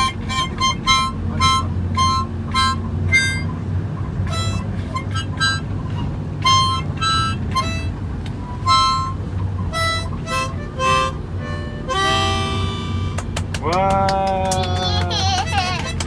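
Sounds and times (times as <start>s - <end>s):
child playing harmonica: 0.0s - 3.6s, 4.2s - 13.2s, 15.2s - 16.0s
low rumble of van cabin: 0.0s - 16.0s.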